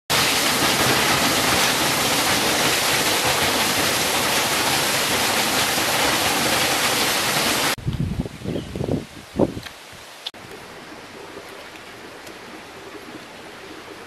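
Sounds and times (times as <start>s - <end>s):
waterfall pouring onto rocks: 0.1s - 7.8s.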